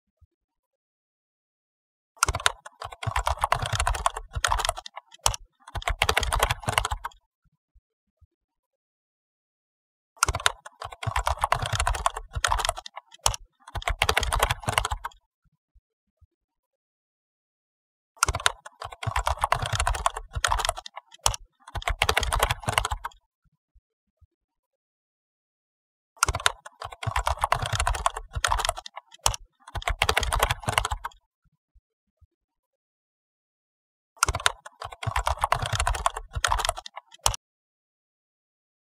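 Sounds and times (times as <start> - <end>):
computer keyboard typing: 2.2 - 7.2, 10.2 - 15.2, 18.2 - 23.2, 26.2 - 31.2, 34.2 - 37.4
keyboard key clicks: 26.2 - 31.2, 34.2 - 37.4.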